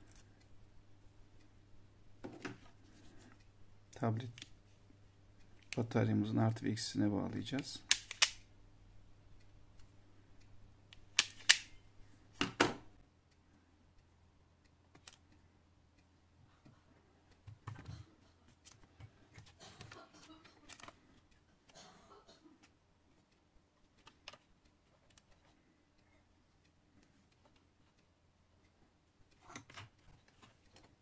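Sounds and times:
wire stripper clicking: 7.8 - 8.4, 10.9 - 11.8.

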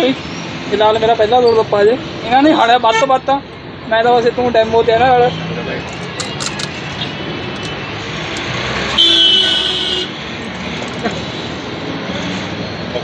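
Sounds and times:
road traffic hum: 0.0 - 13.0
vehicle horn honk: 9.0 - 10.1.

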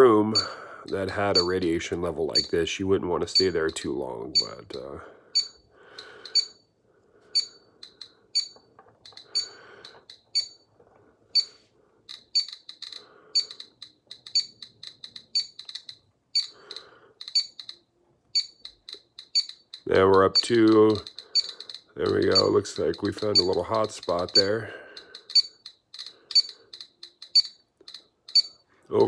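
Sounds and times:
geiger counter beeping: 0.3 - 2.6, 3.3 - 6.6, 7.3 - 10.7, 11.3 - 28.6.

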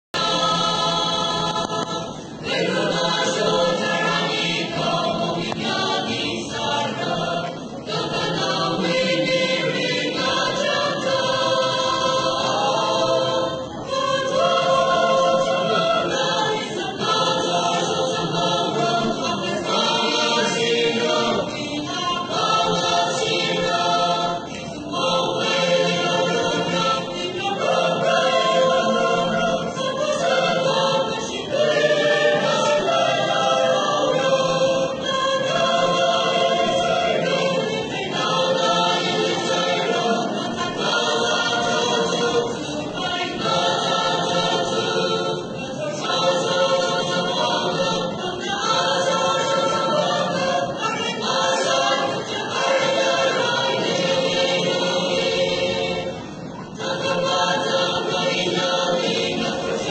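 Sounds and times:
choir singing: 0.1 - 59.9.

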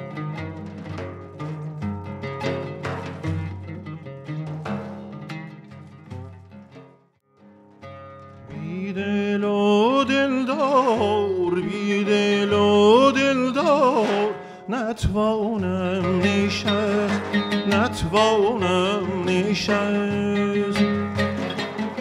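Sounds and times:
man singing ornamented vocal line: 8.5 - 21.4.

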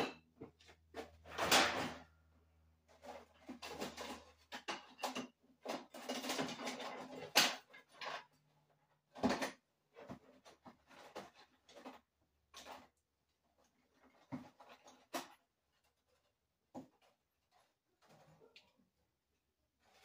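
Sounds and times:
tools clattering and rustling: 2.9 - 8.4.

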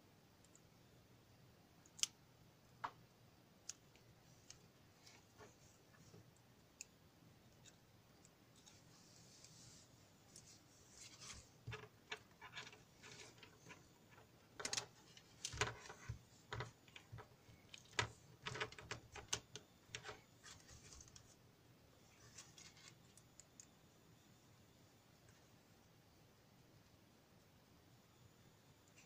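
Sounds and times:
wires and clips rattling: 10.4 - 21.3.

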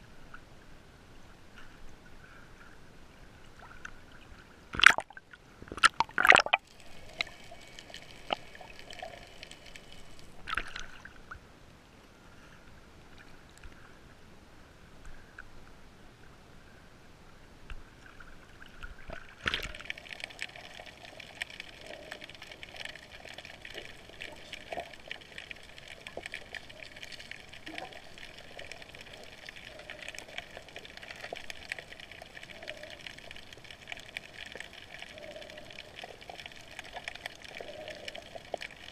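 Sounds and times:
sea water splashing: 3.5 - 11.4, 18.0 - 38.9
steady underwater hiss: 5.4 - 38.9.

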